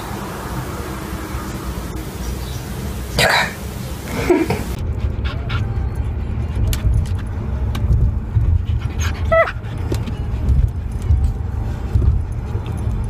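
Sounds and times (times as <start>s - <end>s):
dog whining: 9.0s - 9.6s.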